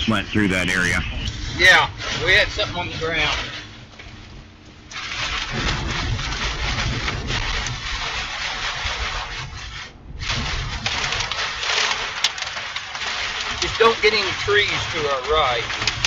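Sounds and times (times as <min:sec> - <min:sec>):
heavy rain on a vehicle: 0:01.6 - 0:03.6, 0:05.0 - 0:09.4, 0:10.2 - 0:16.0.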